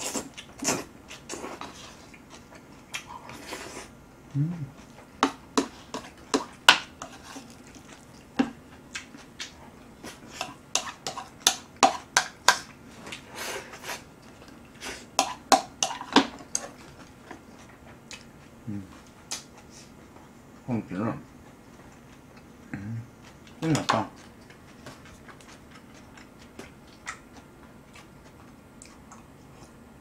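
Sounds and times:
chewing and mouth noises: 7.2s - 11.2s, 23.2s - 29.8s.

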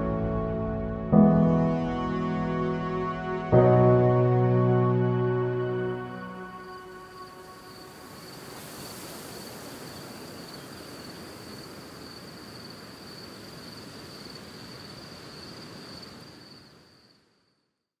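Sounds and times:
soft hiss: 6.0s - 17.6s
high-pitched insect trill: 6.1s - 17.3s.

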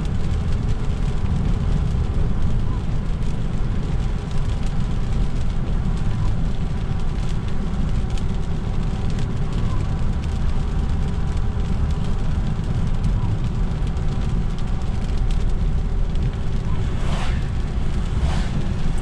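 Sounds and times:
engine and tyres rumbling: 0.0s - 19.0s
tyres hissing on wet road: 3.0s - 19.0s.

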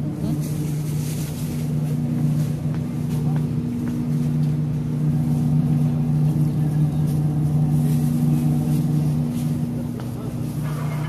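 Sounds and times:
refrigerator hum: 0.0s - 11.0s.

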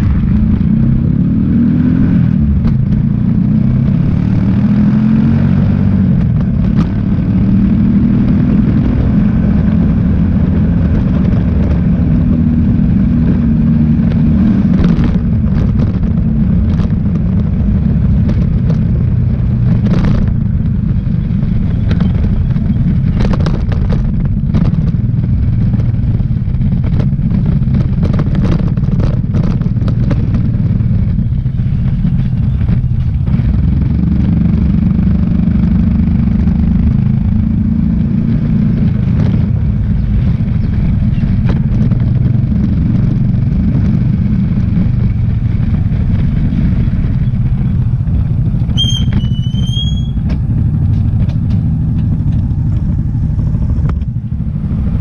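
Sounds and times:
motorcycle engine running: 0.0s - 55.0s
road and wind noise: 0.0s - 55.0s
short high squeal: 48.7s - 50.2s.

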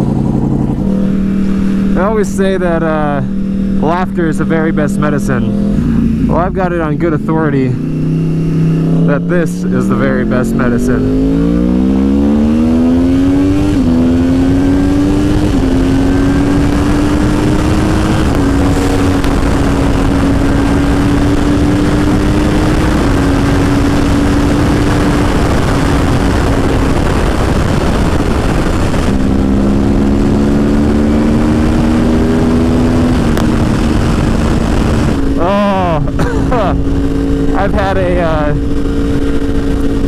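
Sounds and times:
motorcycle engine accelerating: 0.0s - 40.0s
wind rush on microphone: 11.0s - 40.0s.

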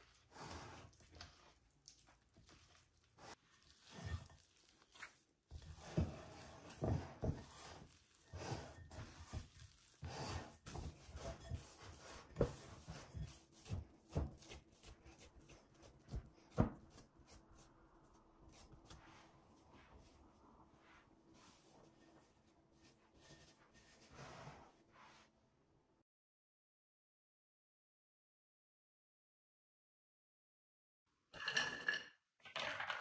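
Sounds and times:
hands kneading dough: 0.0s - 25.4s.

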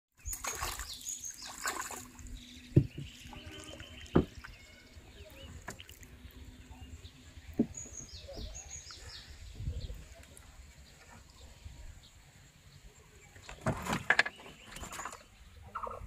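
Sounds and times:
fish splashing in water: 0.2s - 2.4s
birds chirping: 0.2s - 16.0s
knocks on wooden boat: 2.7s - 3.2s, 4.1s - 4.4s, 7.6s - 8.6s.

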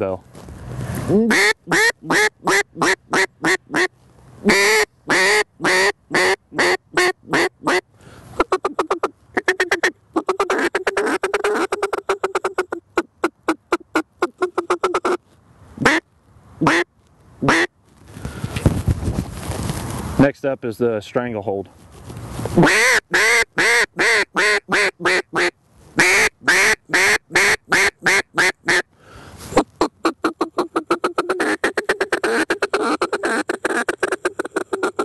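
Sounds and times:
duck call quacks: 1.3s - 7.8s, 8.4s - 15.2s, 15.8s - 16.0s, 16.6s - 17.7s, 22.6s - 28.9s, 29.5s - 35.0s
duck call rattling feed chatter: 8.4s - 12.8s, 30.1s - 35.0s.

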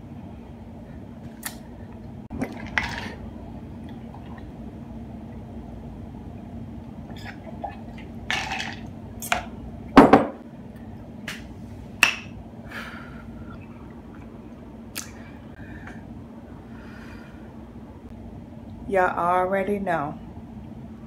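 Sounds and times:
glass set down on table: 10.0s - 10.4s
lip smacks and clicks: 14.9s - 15.2s.

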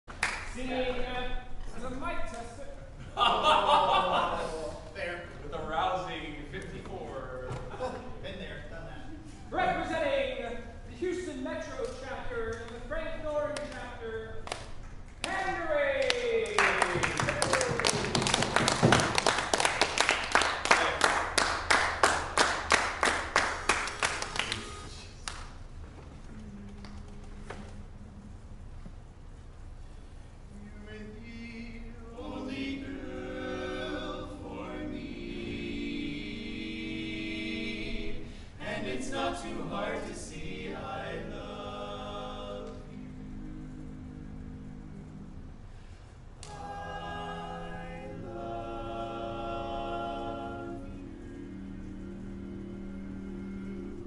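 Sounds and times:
loud close claps: 0.1s - 0.6s, 13.6s - 25.6s
audience applauding: 16.0s - 25.4s
male quartet singing a cappella: 30.5s - 54.0s.

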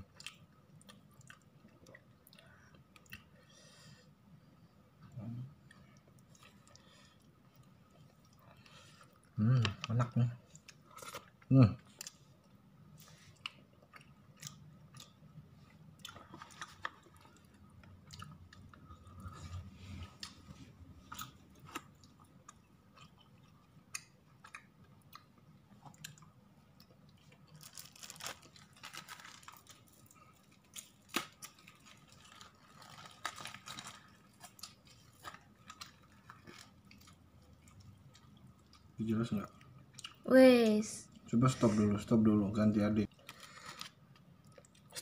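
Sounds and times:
person chewing: 0.0s - 3.4s, 5.6s - 40.2s
food wrapping rustling: 16.1s - 17.7s, 27.2s - 38.3s, 43.2s - 44.2s.

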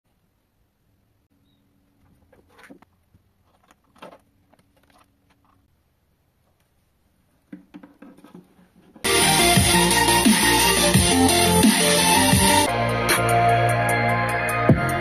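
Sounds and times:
soft knocks and rustles: 7.5s - 9.0s.

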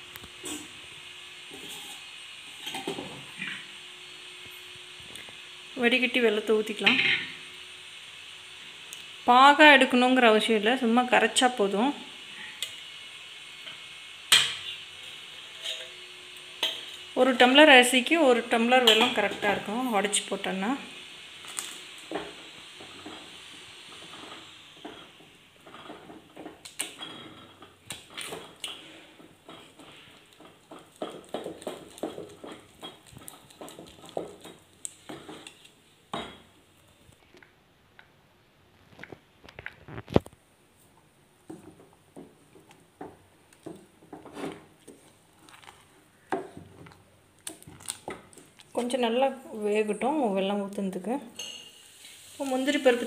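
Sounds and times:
wooden spoon stirring thick food: 27.7s - 35.8s, 41.4s - 49.0s.

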